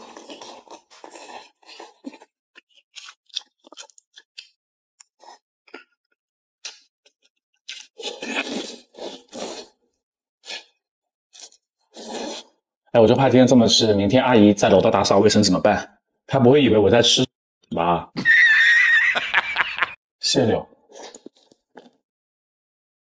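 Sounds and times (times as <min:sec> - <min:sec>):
slurping: 0:00.0 - 0:05.9, 0:06.6 - 0:09.8, 0:10.4 - 0:12.6, 0:20.9 - 0:22.0
wet chewing and crunching: 0:00.0 - 0:09.8, 0:10.4 - 0:12.5, 0:20.9 - 0:22.0.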